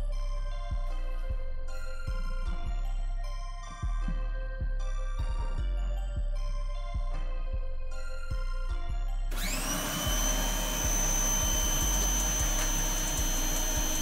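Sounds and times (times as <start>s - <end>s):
background music: 0.0s - 14.0s
pressure washer motor whine: 9.3s - 14.0s.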